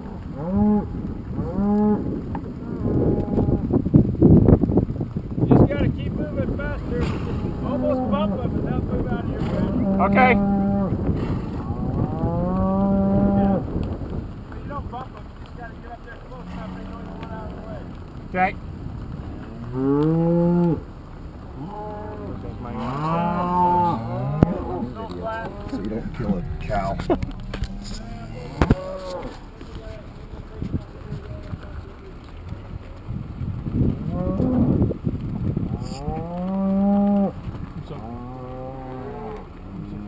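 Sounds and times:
cattle mooing: 0.0s - 3.8s, 6.8s - 13.7s, 16.3s - 18.0s, 19.4s - 20.8s, 21.4s - 29.4s, 34.0s - 34.8s, 35.7s - 40.0s.

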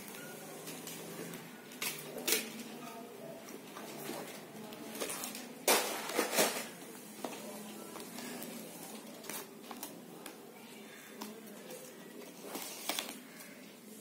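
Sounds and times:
paper and card rustling: 3.5s - 13.6s.

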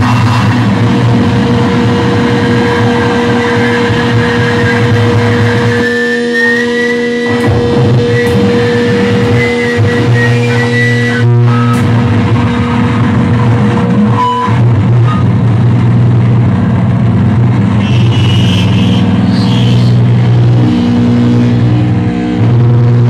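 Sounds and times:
distorted electric guitar drone: 0.0s - 23.0s
high whistling feedback tone: 1.6s - 12.9s, 14.1s - 15.3s, 17.8s - 21.6s.

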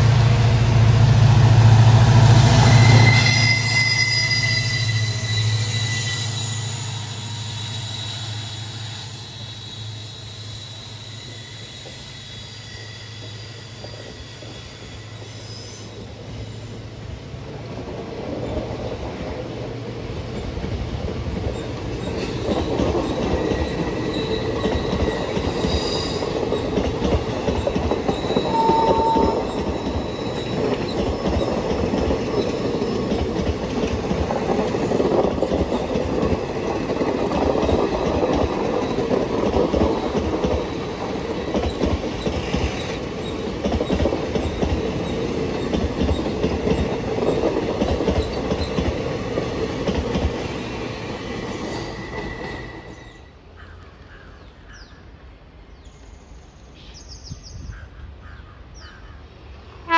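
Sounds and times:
train wheels rolling and clattering: 0.0s - 53.3s
high wheel squeal: 2.3s - 16.9s, 23.6s - 26.4s, 28.0s - 31.5s, 51.1s - 53.4s.

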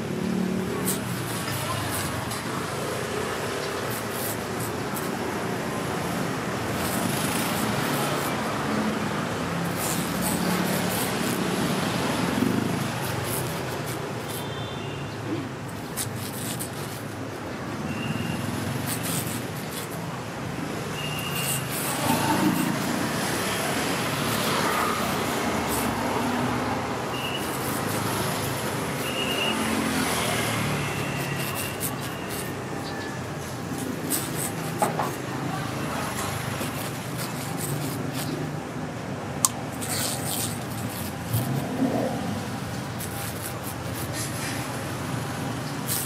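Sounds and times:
roadside traffic: 0.0s - 46.0s
short high squeaks: 9.6s - 38.6s, 39.5s - 46.0s.

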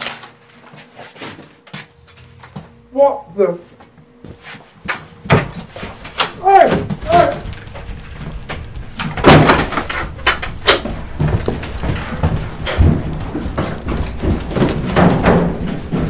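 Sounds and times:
thuds and bangs: 6.5s - 16.0s.

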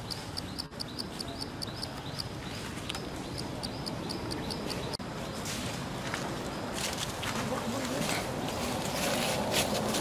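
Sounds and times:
high chirping call: 0.0s - 5.0s.

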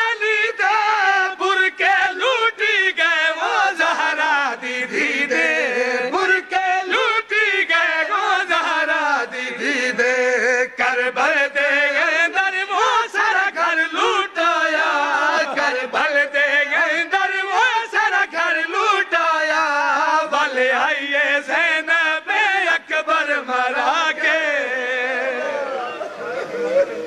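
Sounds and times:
men chanting a lament over pa: 0.0s - 26.1s.

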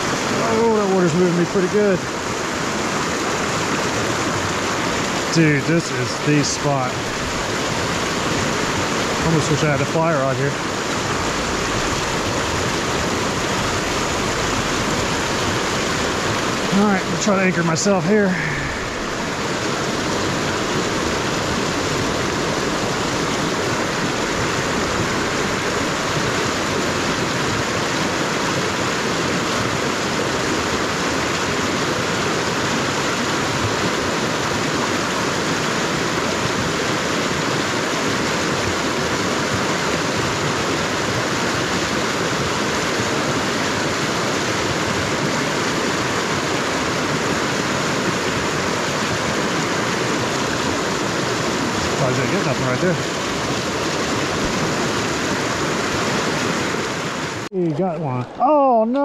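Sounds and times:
river rushing: 0.0s - 59.0s.

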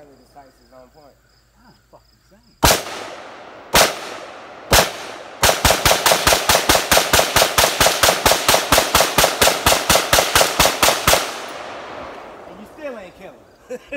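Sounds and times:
rifle gunshots with echo: 2.6s - 13.4s.

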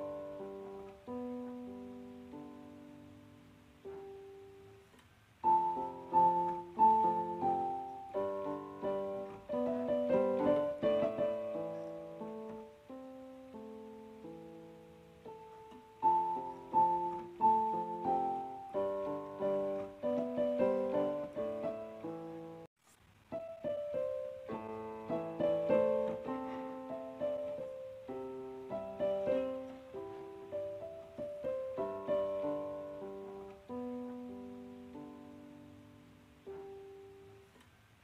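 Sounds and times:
gentle piano melody: 0.0s - 22.7s, 23.3s - 38.0s.

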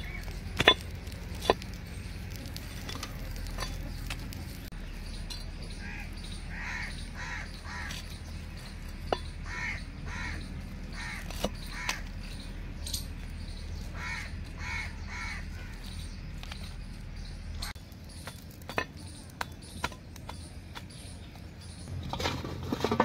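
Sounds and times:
crow cawing: 5.8s - 8.0s, 9.4s - 12.0s, 14.0s - 15.7s.

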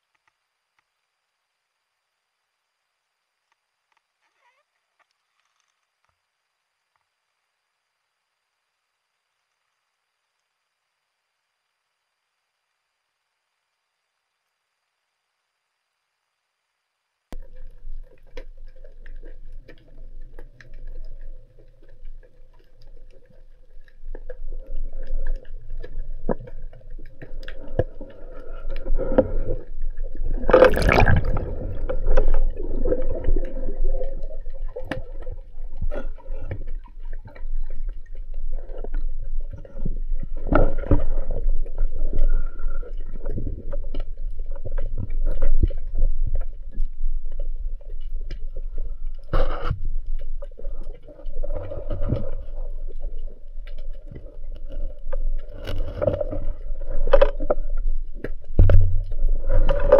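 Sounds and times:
water gurgling underwater: 17.4s - 59.9s.

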